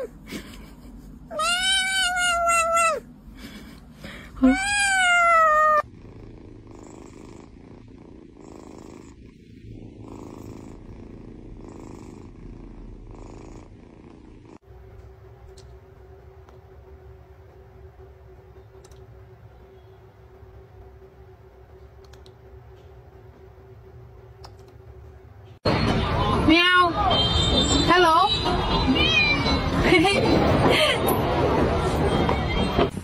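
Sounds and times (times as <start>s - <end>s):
kitten meowing: 1.3s - 3.0s, 4.4s - 5.9s
cat purring: 5.4s - 14.7s.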